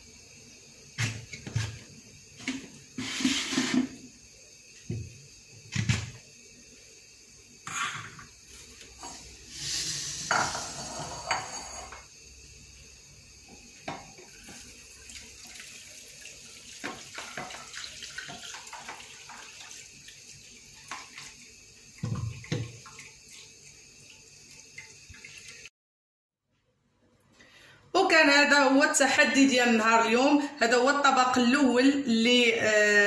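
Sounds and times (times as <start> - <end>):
juice pouring and splashing: 14.2 - 25.7.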